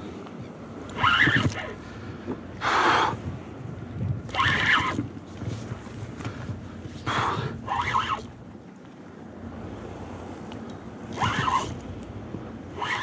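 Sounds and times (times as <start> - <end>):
wind on microphone: 0.0 - 8.6, 9.4 - 13.0
fishing reel and line noise: 12.8 - 13.0.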